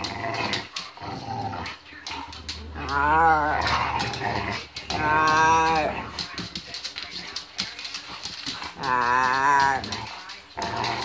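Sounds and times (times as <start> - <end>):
claws clicking on wooden floor: 0.0 - 11.0
dog whining growls: 2.8 - 6.0, 8.8 - 10.0.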